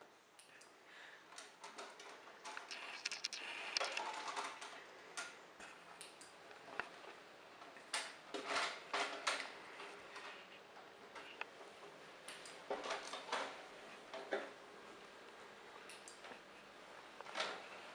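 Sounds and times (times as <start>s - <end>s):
plastic clicks and rattling scrapes: 1.4s - 5.8s.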